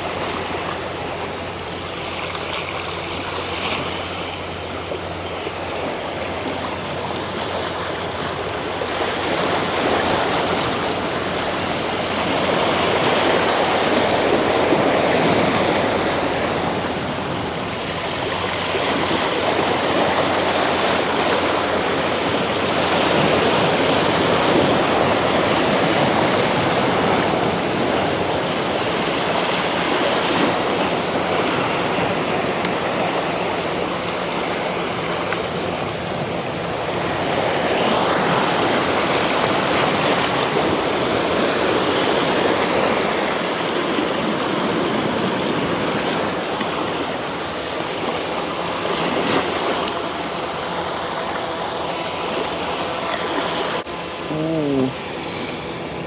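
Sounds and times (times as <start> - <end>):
surf washing over rocks: 0.0 - 56.0.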